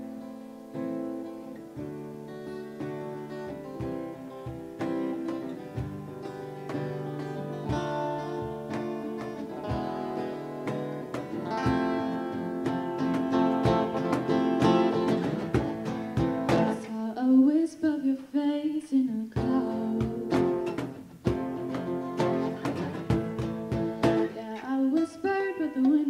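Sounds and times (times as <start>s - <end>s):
acoustic guitars strumming: 0.0s - 17.1s, 19.4s - 26.0s
person singing: 14.0s - 21.0s, 24.0s - 26.0s.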